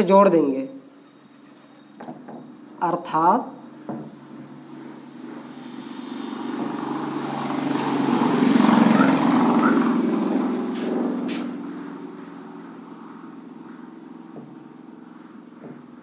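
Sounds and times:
passing vehicle engine hum: 3.5 - 16.0.

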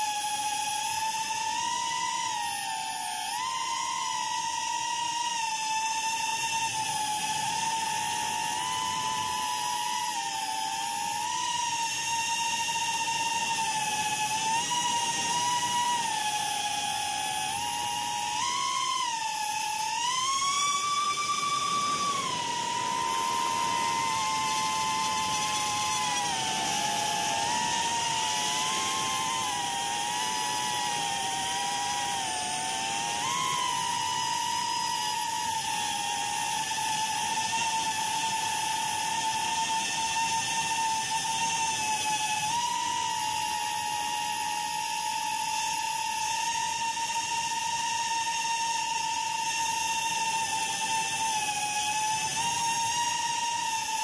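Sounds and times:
drone propellers whining: 0.0 - 54.0.

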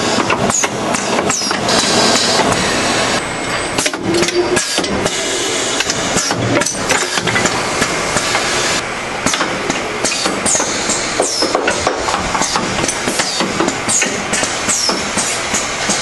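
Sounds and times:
mechanical clacks and knocks: 0.0 - 2.6, 3.5 - 5.2, 5.8 - 8.5, 9.2 - 16.0
constant machinery noise: 0.0 - 16.0.

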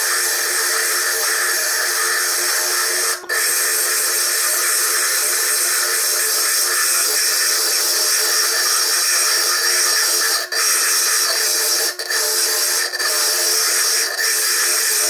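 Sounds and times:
bench lathe whirring: 0.0 - 10.6
drill grinding stone: 0.0 - 15.0.

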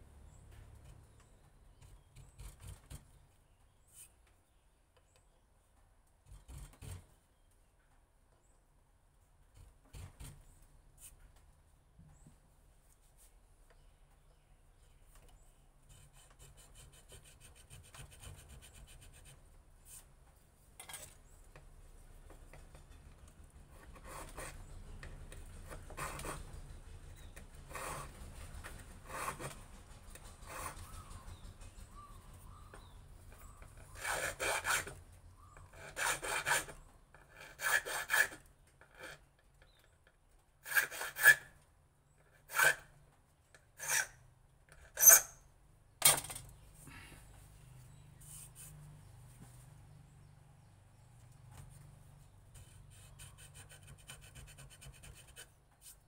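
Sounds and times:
hand tool scraping wood: 6.3 - 7.2, 22.3 - 32.0, 32.7 - 40.0, 40.6 - 41.5, 42.2 - 42.9, 43.7 - 45.4.

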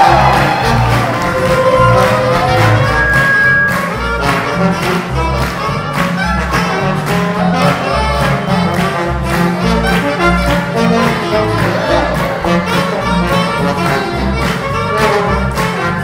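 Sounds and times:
held horn note: 0.0 - 5.8
jazz band playing swing: 0.0 - 16.0.

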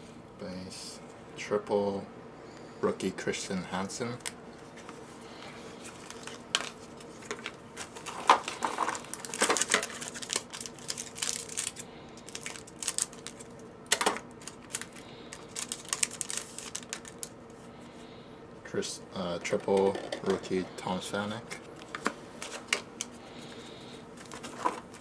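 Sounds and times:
foil pack crinkling: 5.4 - 17.4, 21.3 - 25.0.

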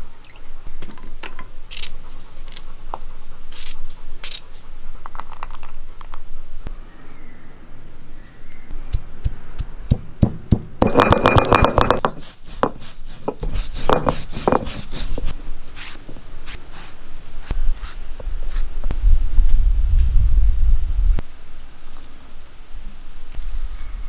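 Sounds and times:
stone roller knocking on grinding stone: 10.2 - 14.9
low rumble: 18.9 - 21.2.

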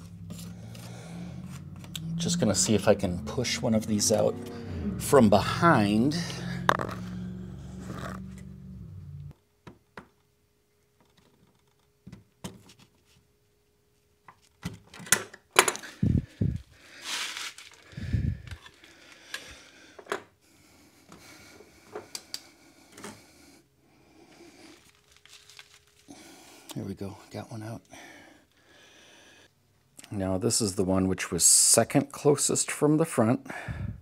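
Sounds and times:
rubber scraping and rubbing: 6.6 - 8.4.

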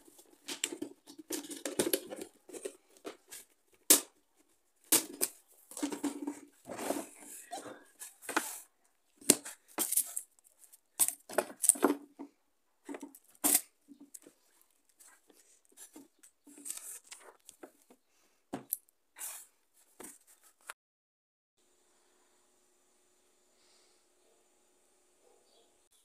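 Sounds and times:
plastic wrapping rustling: 0.0 - 12.1.

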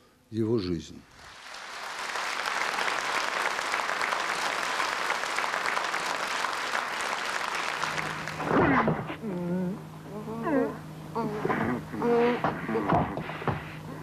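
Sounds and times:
audience applauding: 1.1 - 8.6.

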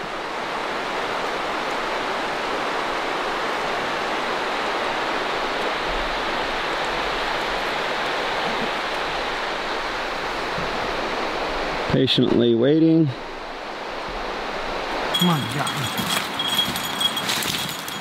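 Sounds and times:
creek water rushing: 0.0 - 12.2, 13.0 - 18.0.

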